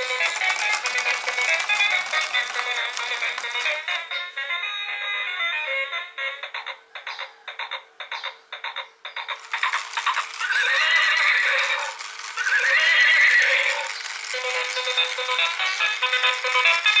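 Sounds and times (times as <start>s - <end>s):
toy horse whinny: 0.0s - 3.4s, 9.4s - 17.0s
quick rhythmic beats: 0.0s - 4.2s, 13.4s - 17.0s.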